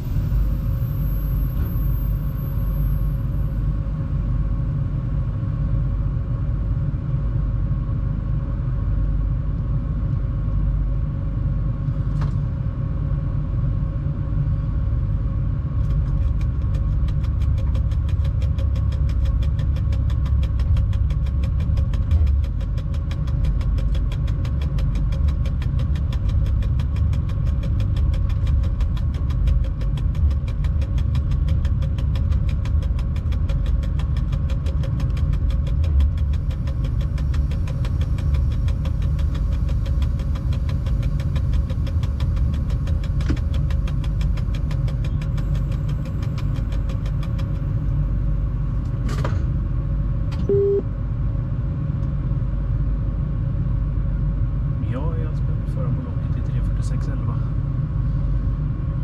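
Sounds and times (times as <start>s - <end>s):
electrical hum: 0.0s - 59.0s
low locomotive rumble: 0.0s - 59.0s
fast regular ticking: 16.0s - 47.6s
short beep: 50.5s - 50.9s.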